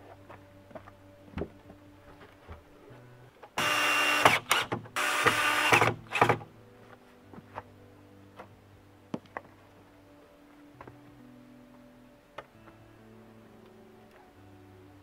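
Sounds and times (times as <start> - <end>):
cordless drill running: 3.6 - 6.3.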